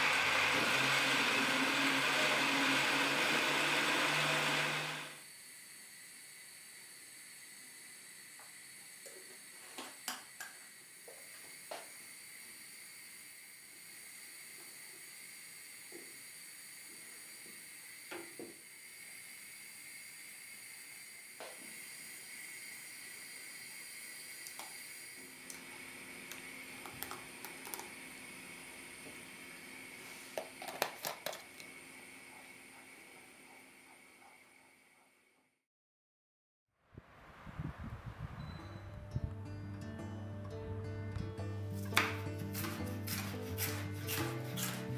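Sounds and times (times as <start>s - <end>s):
gas hob hissing: 0.0s - 35.3s, 41.8s - 44.9s
wooden spoon scraping a pot: 42.5s - 44.9s.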